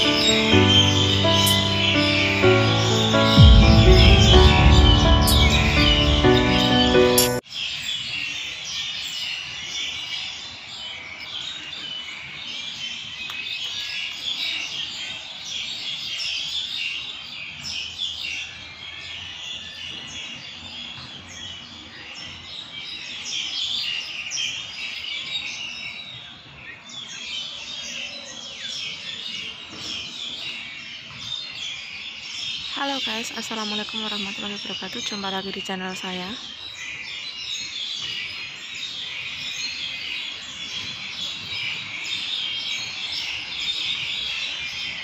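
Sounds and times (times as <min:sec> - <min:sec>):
birds chirping: 0:00.0 - 0:07.4, 0:32.6 - 0:45.0.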